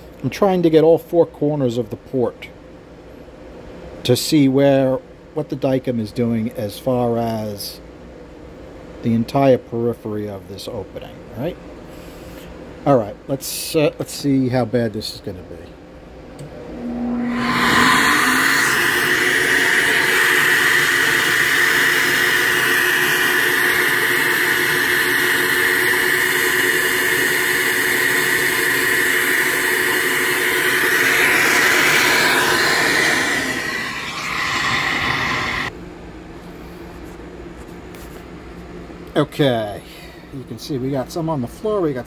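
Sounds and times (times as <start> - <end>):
steady hum: 0.0 - 42.0
air rushing through flowbench: 16.8 - 35.7.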